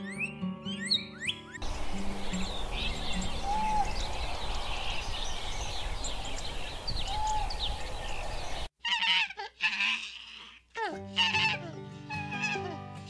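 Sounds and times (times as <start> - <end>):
small birds chirping: 0.0 - 9.2
steady background hiss: 1.6 - 8.7.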